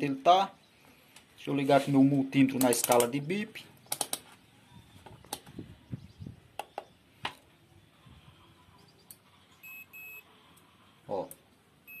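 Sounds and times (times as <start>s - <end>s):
high-pitched multimeter beep: 9.6s - 10.2s.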